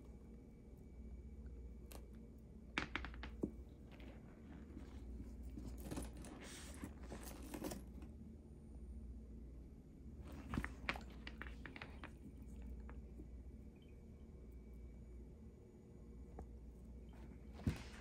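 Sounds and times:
leather rustling and rubbing: 4.0s - 7.8s, 17.5s - 18.0s.

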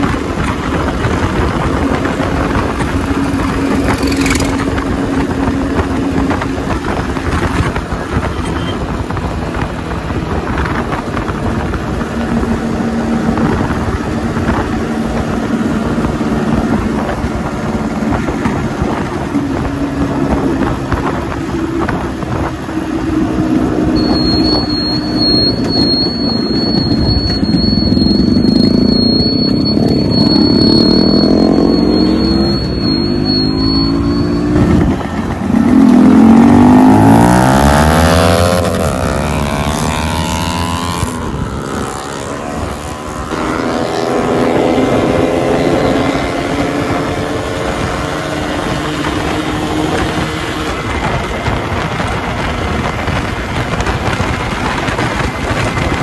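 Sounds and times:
motorcycle engines revving: 0.0s - 56.0s
thin high whistle: 24.0s - 34.9s.

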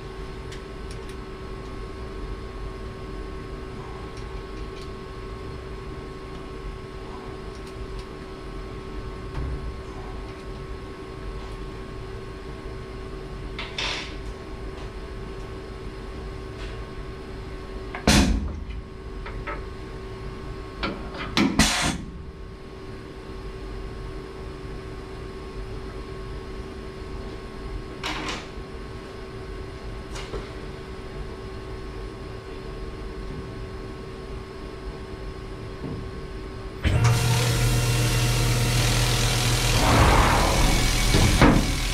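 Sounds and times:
steady machine hum: 33.6s - 41.9s.

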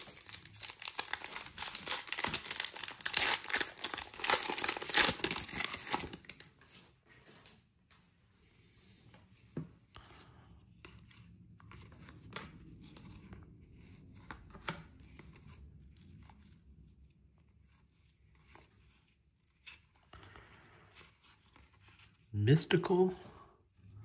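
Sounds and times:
cards rustling and clicking: 0.0s - 6.5s.

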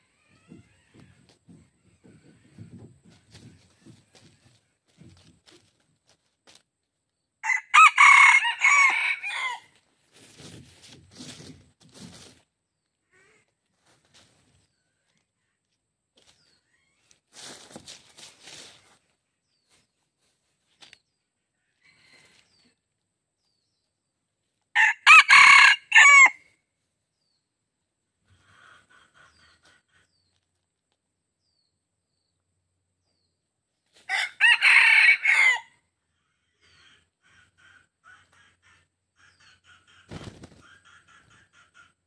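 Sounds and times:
rooster crowing: 7.4s - 9.7s, 24.8s - 26.4s, 34.1s - 35.7s
rustling in dry leaves: 9.8s - 12.4s, 16.3s - 21.1s.

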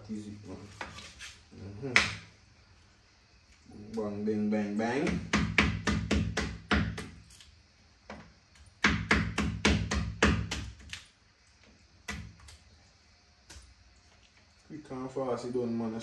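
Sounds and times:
knife chopping on cutting board: 5.0s - 7.2s, 8.8s - 10.9s.

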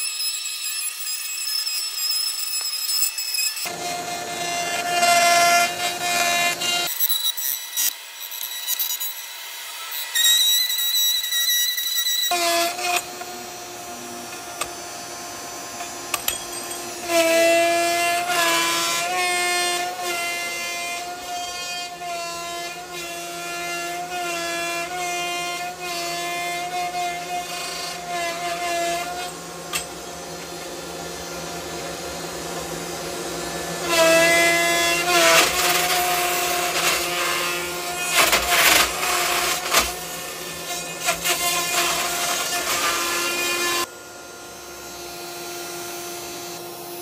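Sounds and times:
cnc machine whining: 0.0s - 47.0s.

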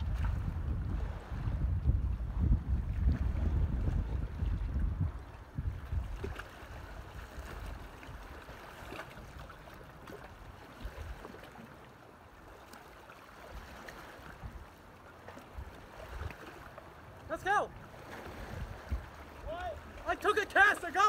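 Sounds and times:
wind buffeting microphone: 0.0s - 11.3s, 13.5s - 14.7s, 17.7s - 20.1s
small waves lapping on rocks: 3.1s - 21.0s.

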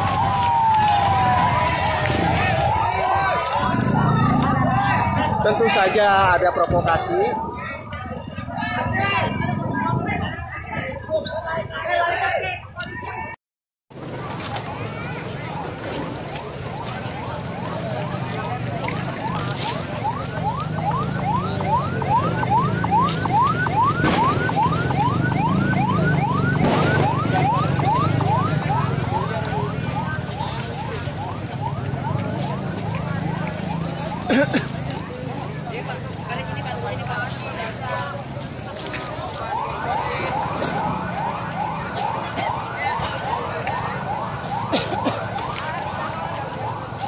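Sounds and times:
electronic siren wailing: 0.0s - 9.8s, 18.8s - 34.3s, 39.2s - 47.0s
street noise rumble: 0.0s - 47.0s.

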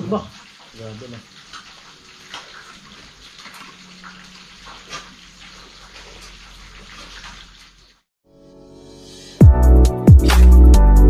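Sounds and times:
running water splashing: 0.0s - 8.1s.

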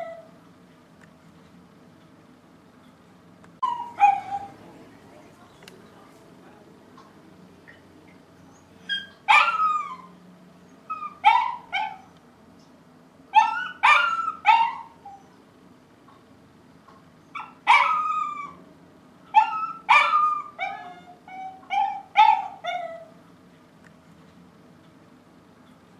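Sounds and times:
dog barking: 3.6s - 4.6s, 8.9s - 10.1s, 11.0s - 12.1s, 13.4s - 15.2s, 17.4s - 18.6s, 19.3s - 23.1s.

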